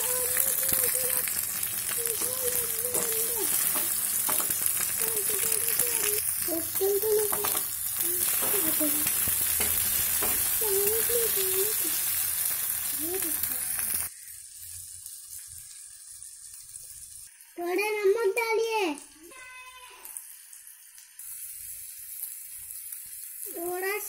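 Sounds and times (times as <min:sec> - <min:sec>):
vegetables sizzling in hot oil: 0:00.0 - 0:24.0
metal spatula scraping pan: 0:07.3 - 0:10.6.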